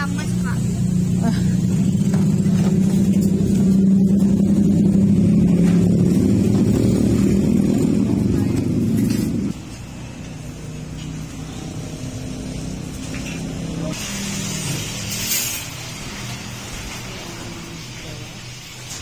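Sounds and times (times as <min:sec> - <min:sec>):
vehicle engine running: 0:00.0 - 0:14.0.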